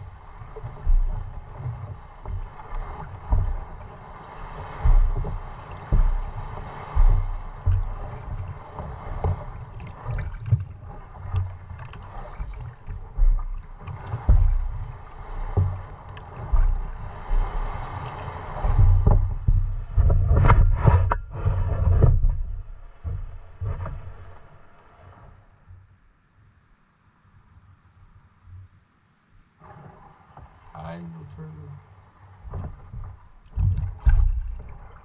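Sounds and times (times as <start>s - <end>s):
sharp knocks: 0.0s - 3.9s, 4.5s - 10.7s
water sloshing against boat: 0.0s - 26.3s, 27.4s - 35.0s
faint steady hum: 0.0s - 35.0s.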